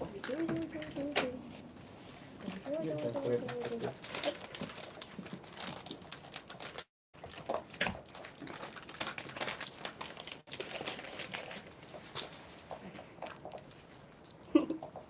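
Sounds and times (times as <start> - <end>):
cat crunching dry kibble: 2.9 - 14.4.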